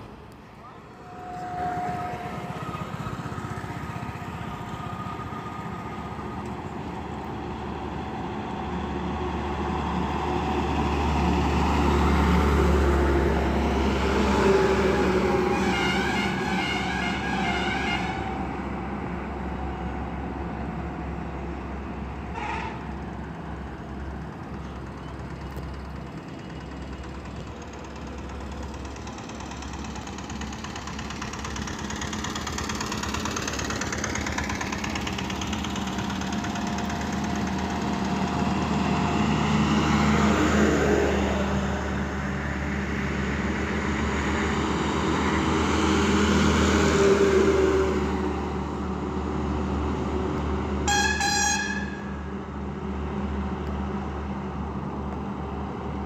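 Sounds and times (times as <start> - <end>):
heavy vehicle passing: 0.0 - 50.9
heavy truck driving past: 0.0 - 56.0
vehicle horn toot: 0.9 - 3.4, 15.4 - 18.5, 22.3 - 22.8, 50.9 - 52.1.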